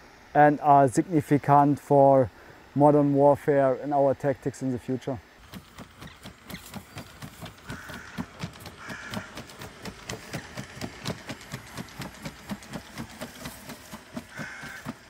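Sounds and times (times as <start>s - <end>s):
high motor whine: 3.0s - 15.0s.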